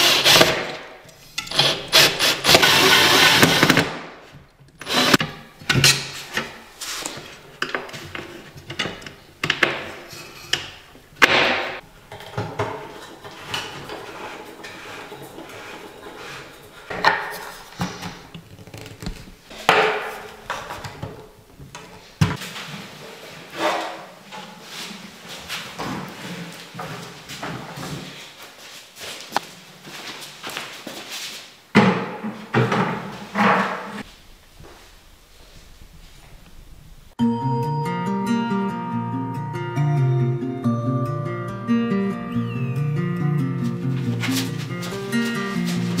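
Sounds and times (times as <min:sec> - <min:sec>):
cordless drill whirring: 0:01.6 - 0:03.7.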